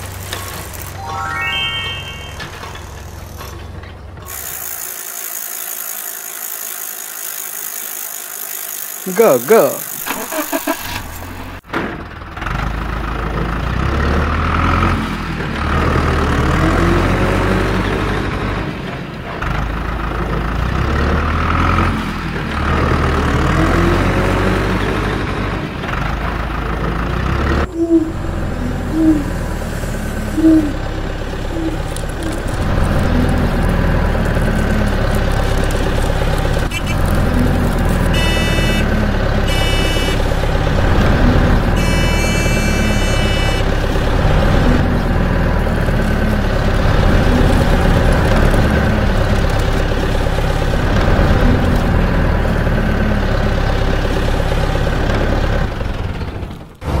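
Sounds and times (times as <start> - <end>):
short high beeps: 1.0 - 3.0.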